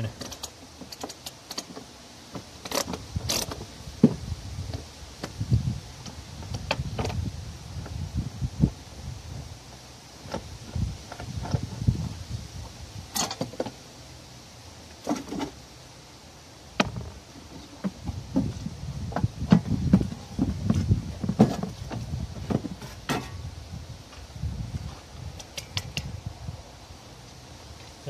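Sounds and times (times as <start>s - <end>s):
metallic clicks and clanks of tools: 13.1s - 13.6s.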